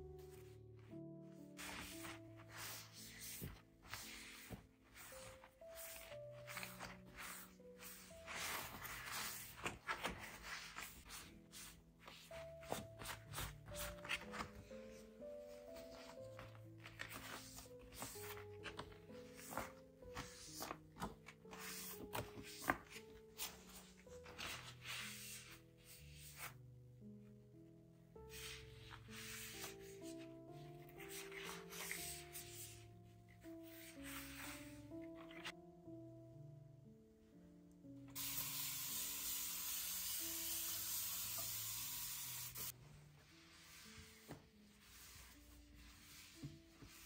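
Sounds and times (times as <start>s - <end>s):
soft background music: 0.0s - 47.0s
cloth rubbing leaves: 1.4s - 25.6s.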